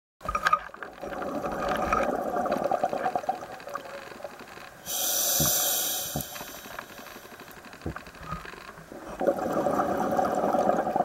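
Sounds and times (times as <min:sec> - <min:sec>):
exhaled bubbles gurgling: 0:00.3 - 0:04.9, 0:08.8 - 0:11.0
regulator inhale hiss: 0:04.8 - 0:07.4.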